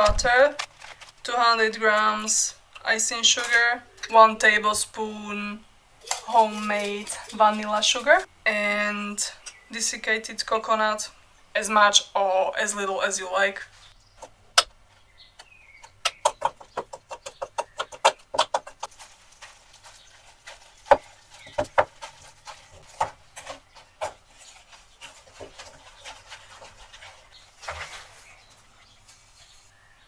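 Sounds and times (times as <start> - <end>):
wooden spoon stirring in bowl: 6.0 - 8.3, 15.4 - 29.8.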